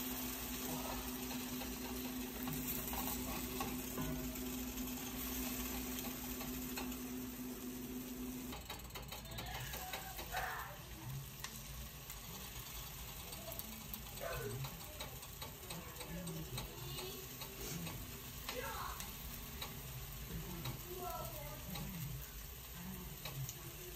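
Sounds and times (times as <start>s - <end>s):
low steady hum: 0.0s - 14.7s
batter sizzling in a skillet: 0.0s - 23.9s
spatula scraping a pan: 0.2s - 6.8s, 16.6s - 18.7s.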